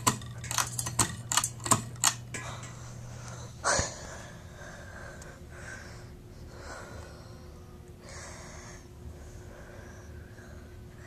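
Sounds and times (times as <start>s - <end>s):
ceiling fan motor humming: 0.0s - 11.0s.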